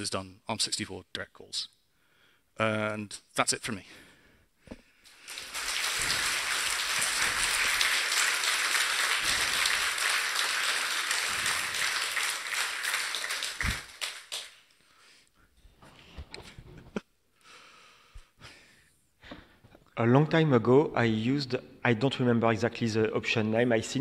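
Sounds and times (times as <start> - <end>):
audience applauding: 5.1 - 14.7.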